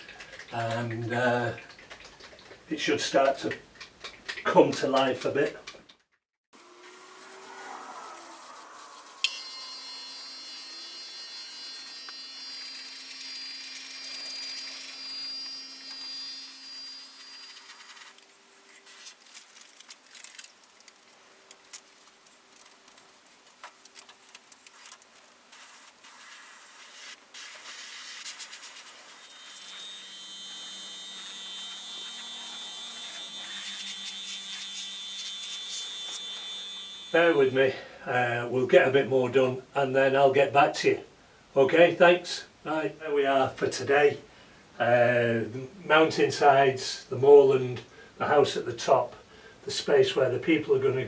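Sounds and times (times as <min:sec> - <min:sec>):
airbrush hissing: 0:06.8 - 0:09.9, 0:25.5 - 0:29.8, 0:32.1 - 0:35.9
small clicks and rustles: 0:17.6 - 0:25.4.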